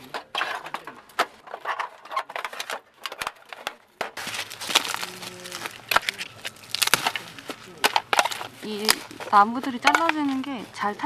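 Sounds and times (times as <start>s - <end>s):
metal plates clinking: 0.0s - 4.2s
dry sticks snapping: 4.2s - 10.6s.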